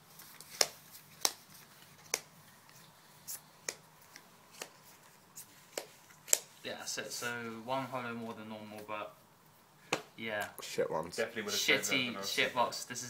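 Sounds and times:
cards tapping on playmat: 0.4s - 1.4s, 5.6s - 6.5s.

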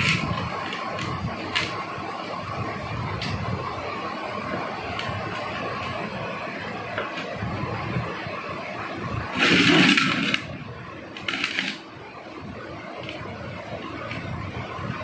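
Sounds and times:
plastic cups scraping in plastic jar: 9.4s - 10.5s, 11.2s - 11.8s.

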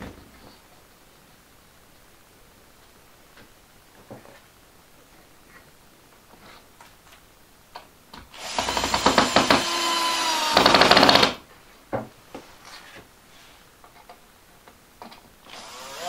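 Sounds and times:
cordless drill driving screw: 8.4s - 11.4s, 15.5s - 16.0s.

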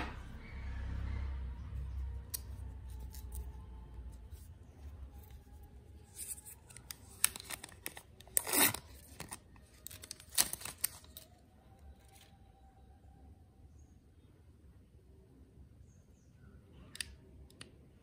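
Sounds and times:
plastic film peeling crackles: 5.3s - 11.4s
plastic film ripping: 6.1s - 11.3s.

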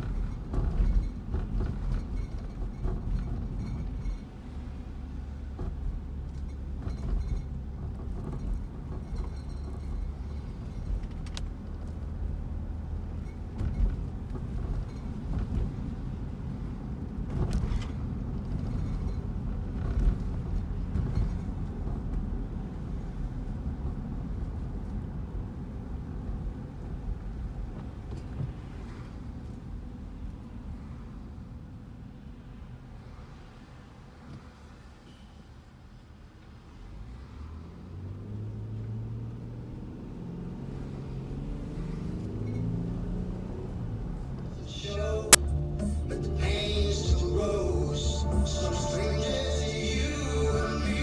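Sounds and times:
car engine and road rumble: 0.0s - 51.0s
low drone: 44.6s - 51.0s.

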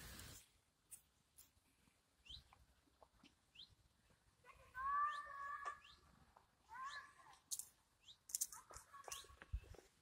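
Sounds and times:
faint bird chirps: 2.2s - 2.6s, 3.5s - 3.8s, 4.8s - 9.9s.

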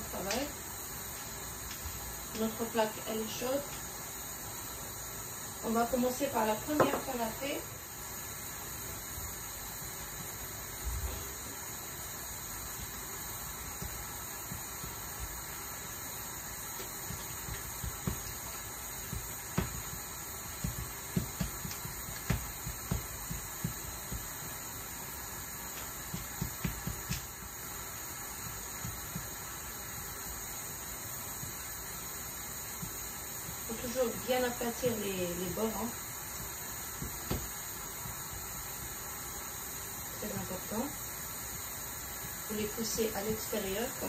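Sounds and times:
steady hiss of griddle: 0.0s - 44.0s
hands patting dough: 12.5s - 39.1s.

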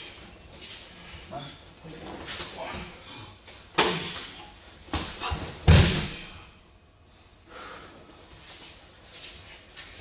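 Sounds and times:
body thud on mat: 5.0s - 6.4s
person breathing hard: 7.3s - 8.3s.

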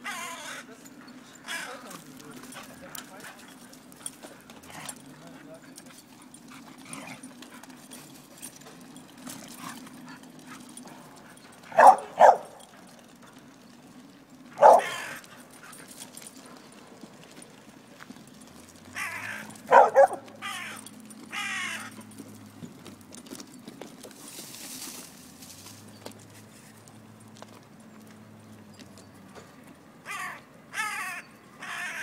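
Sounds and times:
dog barking: 11.7s - 12.7s, 14.6s - 15.2s, 19.2s - 20.3s.

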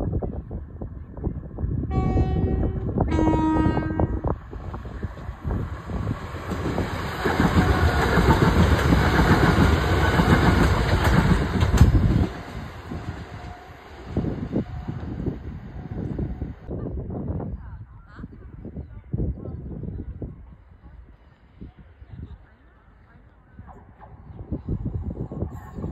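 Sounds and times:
two-tone train horn: 1.9s - 4.4s
train wheels and running noise: 2.6s - 16.7s.

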